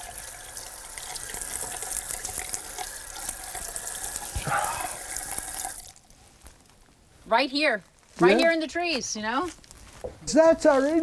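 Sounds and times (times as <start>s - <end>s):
tap water running into sink: 0.0s - 5.9s.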